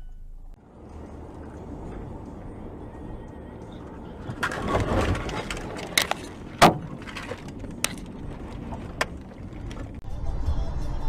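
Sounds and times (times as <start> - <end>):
car crash noise: 3.6 - 10.0
sharp knocks: 6.6 - 8.1.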